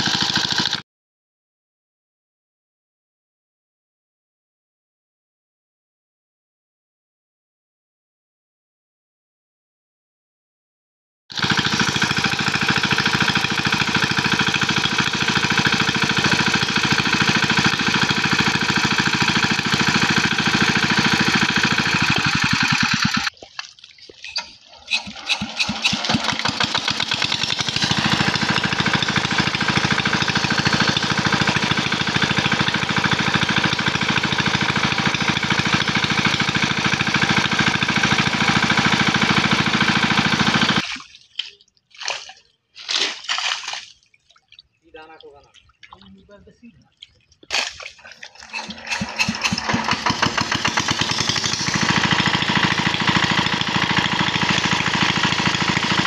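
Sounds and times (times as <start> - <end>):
water pump engine running: 0.0 - 0.8, 11.3 - 23.5, 24.3 - 41.2, 47.4 - 56.0.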